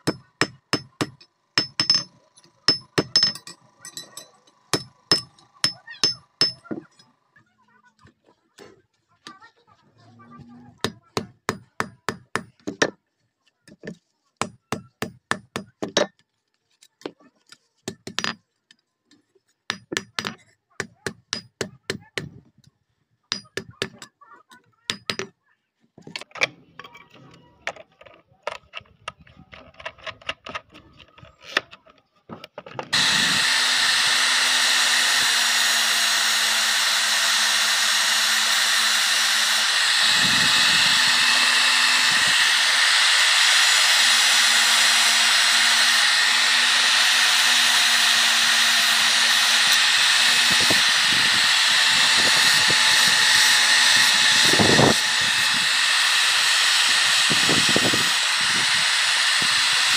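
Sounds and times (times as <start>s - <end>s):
hammer striking steel on anvil: 0.0s - 7.1s, 23.3s - 24.1s
metal parts clicking and knocking: 0.0s - 7.2s, 26.0s - 32.9s
angle grinder running: 32.9s - 59.9s.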